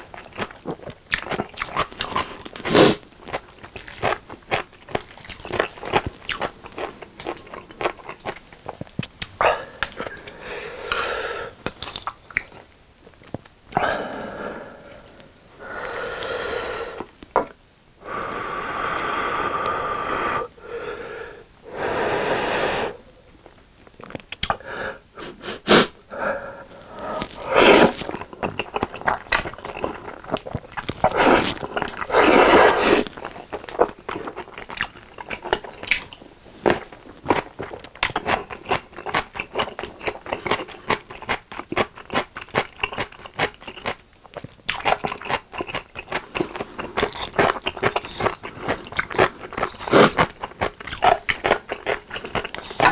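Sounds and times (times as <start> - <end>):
wet chewing and smacking: 0.0 - 10.4, 11.6 - 13.8, 23.4 - 24.6, 26.9 - 52.9
slurping noodles: 25.2 - 33.7, 46.3 - 50.4.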